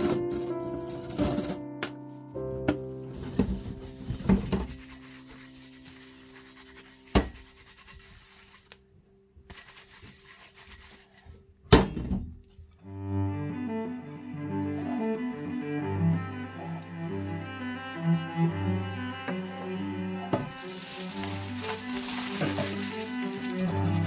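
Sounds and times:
background music: 0.0 - 7.8, 12.8 - 24.0
paper towel rubbing metal pan: 3.1 - 8.7, 9.5 - 11.3, 20.5 - 24.0.

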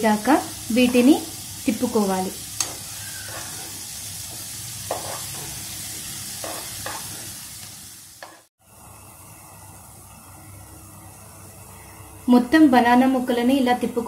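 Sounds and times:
food sizzling in butter: 0.0 - 14.0
metal spoon scraping a pan: 2.6 - 7.4, 8.2 - 8.5.

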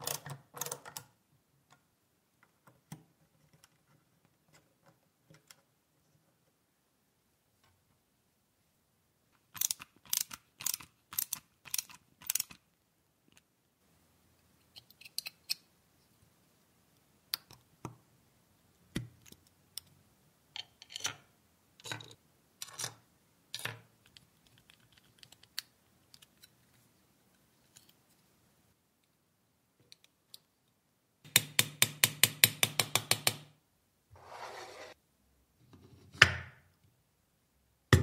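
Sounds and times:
small metal parts clicking: 9.5 - 12.6.

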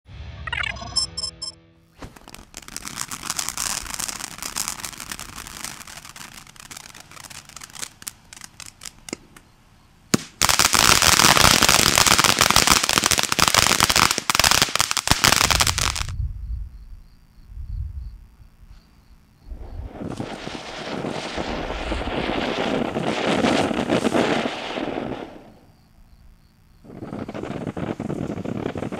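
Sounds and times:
fireworks fountain hissing: 2.0 - 9.4, 10.1 - 16.1, 19.5 - 25.7, 26.8 - 28.9
fireworks crackling: 2.0 - 9.5, 10.1 - 16.2, 19.5 - 25.8, 26.8 - 28.9.

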